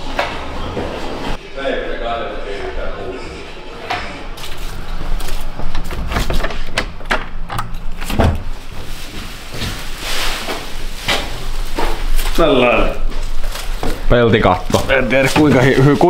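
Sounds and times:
footsteps: 3.3 - 6.7, 8.5 - 16.0
plastic film rustling: 8.4 - 16.0.

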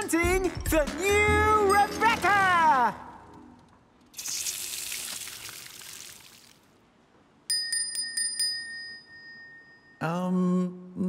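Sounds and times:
hand bell ringing: 7.5 - 10.0.

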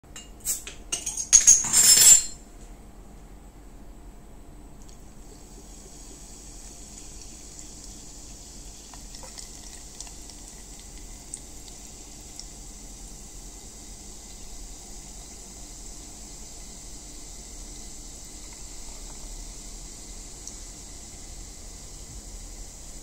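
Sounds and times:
soda water pouring over ice: 5.7 - 12.7.

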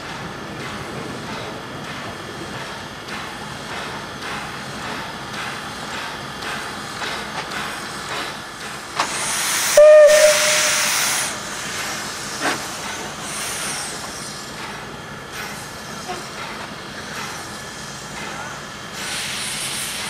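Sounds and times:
steam locomotive hissing steam: 0.0 - 20.0
steam whistle toot: 9.7 - 11.5.

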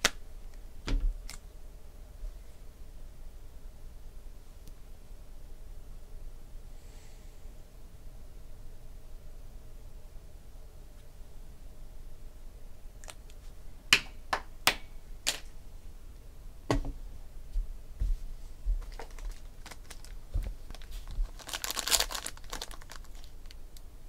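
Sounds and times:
foil wrapper crinkling: 18.8 - 23.6.

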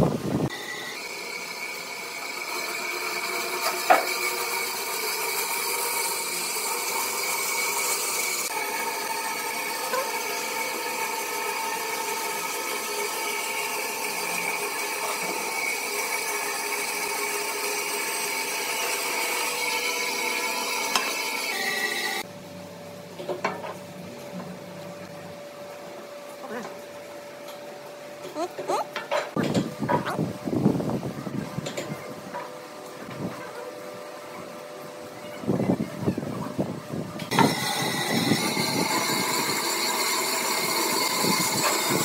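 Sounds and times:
bandsaw cutting wood: 0.5 - 22.2, 37.3 - 42.0.

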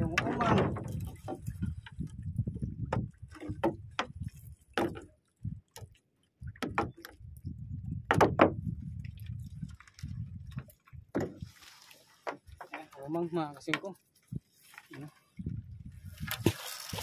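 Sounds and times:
sharp knocks and clicks: 6.6 - 7.2, 8.1 - 8.6.

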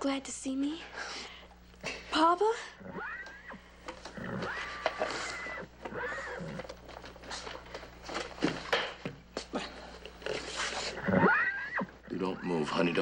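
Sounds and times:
horse whinnying: 2.8 - 6.8, 10.6 - 12.7.

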